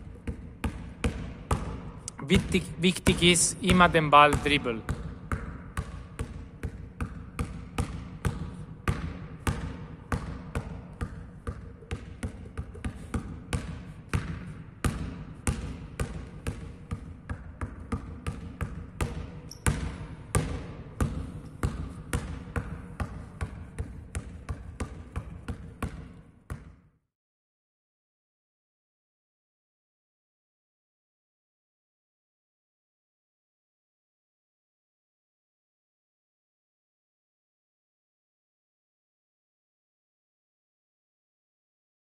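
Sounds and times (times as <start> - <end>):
basketball bouncing on floor: 0.0 - 26.9.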